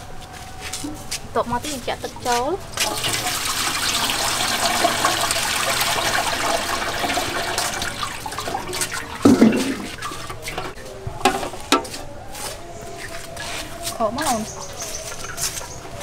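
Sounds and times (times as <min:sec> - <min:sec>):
water pouring into a pot: 0:02.8 - 0:10.7.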